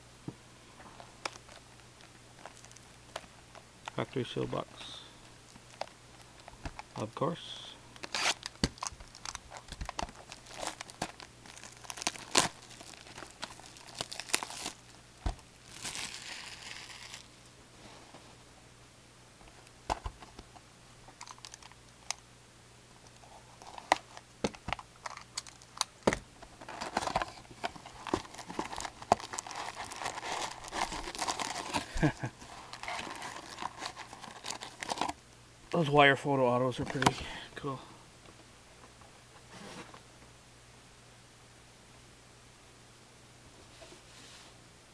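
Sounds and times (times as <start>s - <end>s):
plastic wrap crinkling and tearing: 1.2s - 3.3s, 8.0s - 17.4s, 26.6s - 35.2s.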